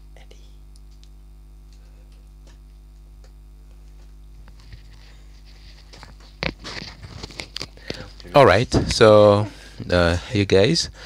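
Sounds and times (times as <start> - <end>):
steady low hum: 0.0 - 11.0
rustling and clicking: 1.7 - 8.3.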